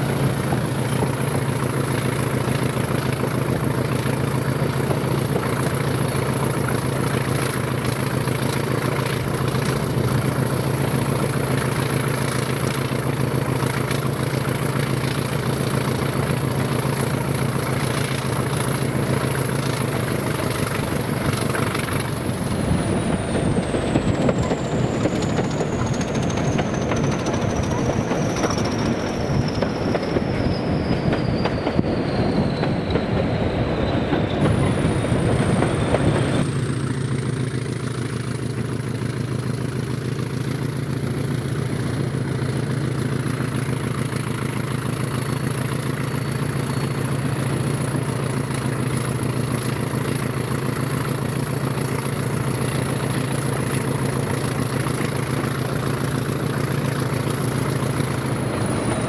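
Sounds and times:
diesel locomotive engine running: 0.0s - 59.0s
train rail noise: 0.0s - 59.0s
high whine: 15.2s - 37.2s, 52.3s - 59.0s.

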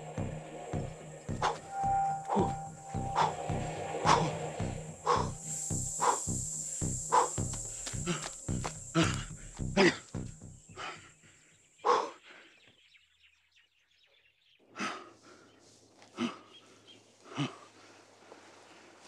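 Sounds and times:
man gasping and panting: 6.0s - 12.6s, 14.7s - 16.6s, 17.2s - 17.9s.

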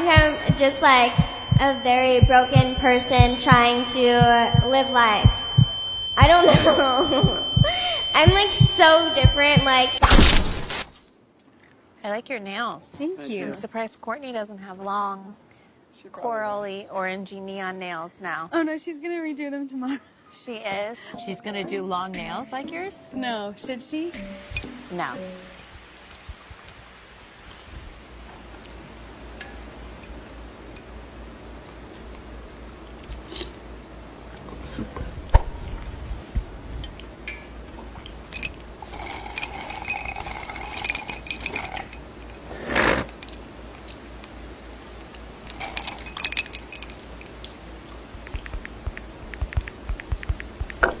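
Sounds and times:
insect-like chirp: 0.0s - 10.9s, 24.1s - 51.0s
tableware clicking and knocking: 45.5s - 47.4s.

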